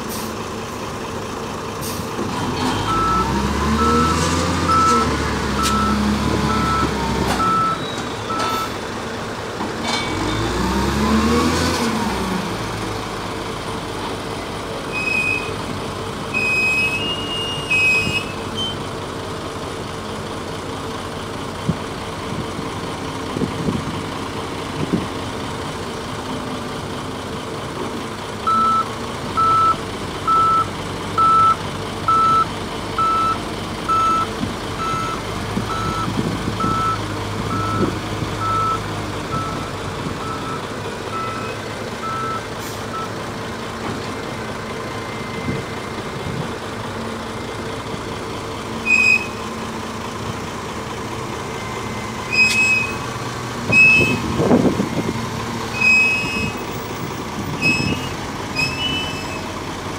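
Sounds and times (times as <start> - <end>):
diesel engine revving: 0.0 - 59.9
reversing alarm beeping: 2.9 - 8.8, 28.5 - 43.1, 51.6 - 53.0, 53.7 - 54.2, 55.8 - 56.6, 57.6 - 59.4.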